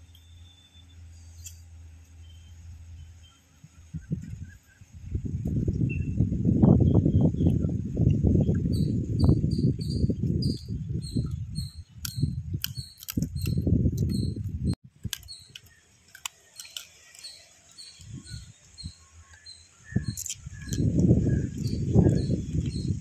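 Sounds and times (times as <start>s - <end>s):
low rumble on microphone: 2.3s - 15.1s, 18.0s - 23.0s
crab shells cracking: 12.0s - 14.1s, 14.9s - 18.1s.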